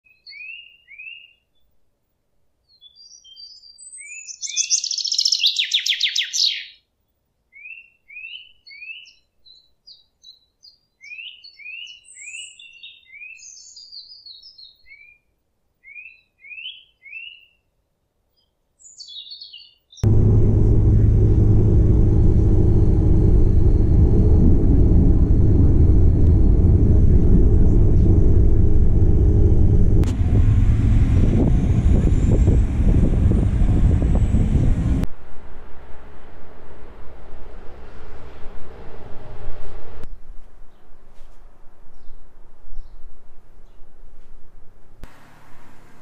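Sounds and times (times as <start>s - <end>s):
small songbirds chirping: 0.1s - 1.6s, 2.6s - 6.8s, 7.5s - 17.7s, 18.3s - 20.1s
train rumble from inside carriage: 20.0s - 35.1s, 35.7s - 40.1s.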